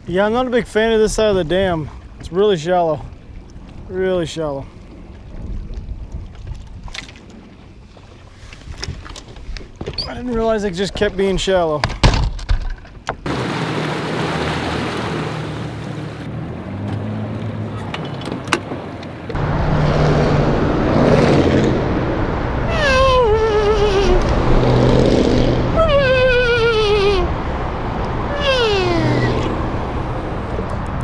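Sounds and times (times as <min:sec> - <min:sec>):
rushing water and wind: 0:00.0 - 0:31.0
wavering falling tone: 0:22.6 - 0:24.6, 0:25.7 - 0:27.4.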